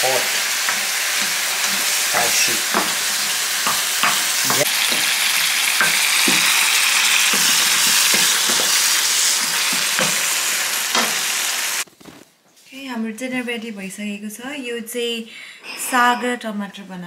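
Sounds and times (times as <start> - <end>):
food sizzling in hot oil: 0.0 - 11.9
utensils knocking and scraping pans: 0.6 - 11.4.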